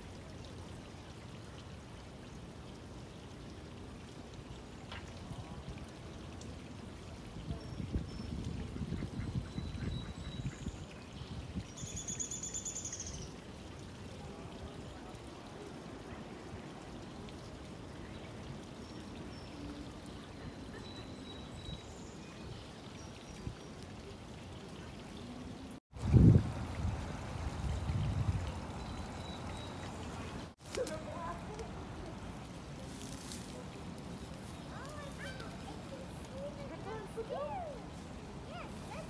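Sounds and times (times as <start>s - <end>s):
creek water flowing: 0.0s - 39.0s.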